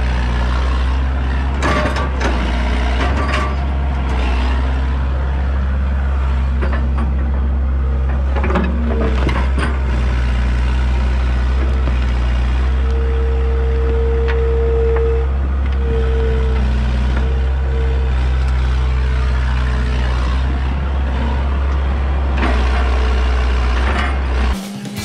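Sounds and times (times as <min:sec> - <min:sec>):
excavator diesel engine running: 0:00.0 - 0:25.0
hydraulic whine: 0:11.5 - 0:25.0.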